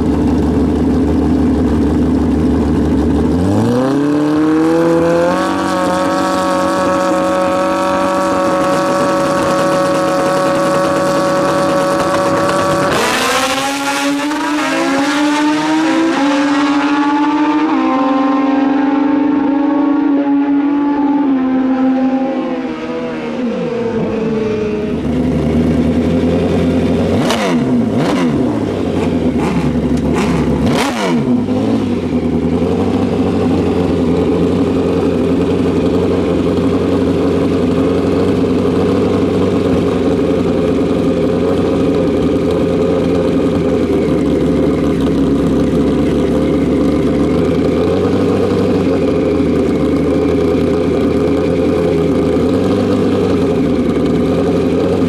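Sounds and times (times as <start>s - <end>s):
motorcycle engines idling: 0.0s - 14.6s, 22.4s - 55.0s.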